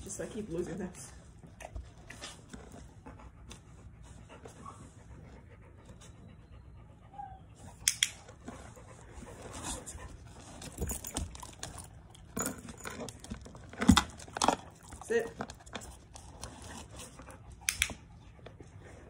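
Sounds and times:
large dog panting: 0:00.0 - 0:12.4
collar tags jingling: 0:10.0 - 0:16.8.

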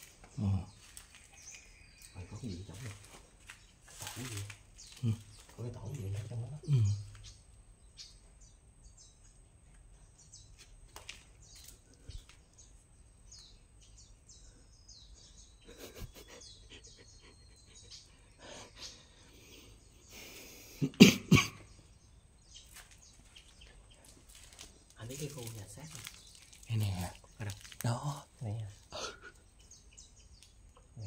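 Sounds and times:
small birds chirping: 0:00.0 - 0:31.0
person coughing: 0:20.8 - 0:21.6.

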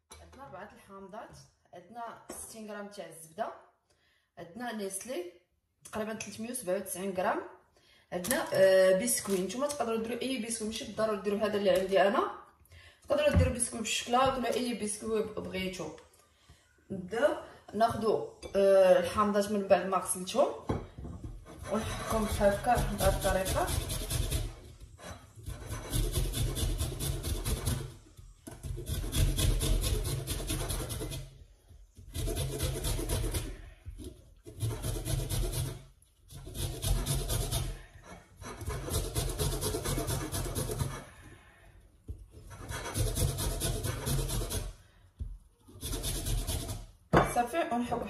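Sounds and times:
grater rasping on lemon rind: 0:21.4 - 0:31.3, 0:32.0 - 0:41.1, 0:42.4 - 0:44.8, 0:45.7 - 0:46.9.

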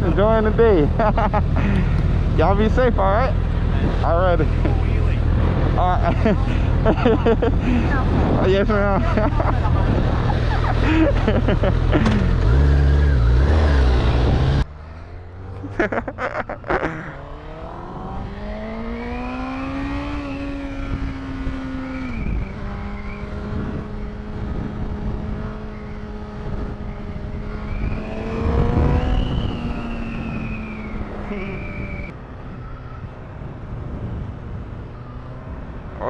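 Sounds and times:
motorcycle engine revving: 0:00.0 - 0:16.2, 0:16.8 - 0:32.2
wind on microphone: 0:05.3 - 0:11.3, 0:19.1 - 0:36.0.

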